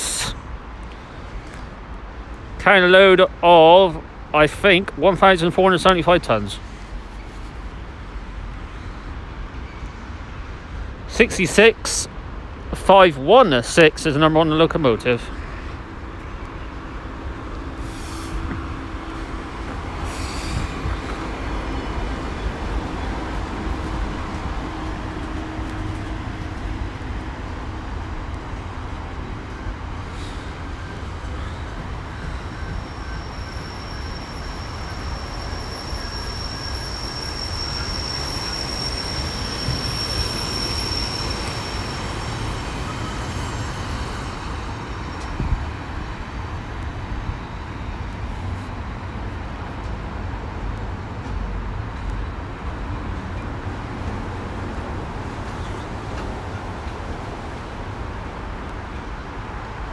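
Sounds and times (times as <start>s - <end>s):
freight train wagons rumbling: 1.6s - 59.9s
high steady squeal: 15.5s - 28.5s, 29.4s - 46.2s.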